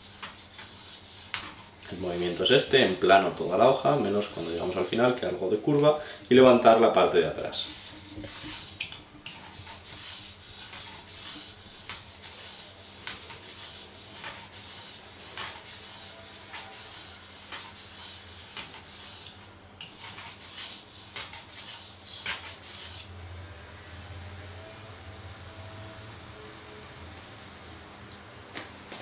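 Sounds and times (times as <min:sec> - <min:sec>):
knife scraping on whetstone: 0:00.0 - 0:05.1, 0:07.6 - 0:23.1.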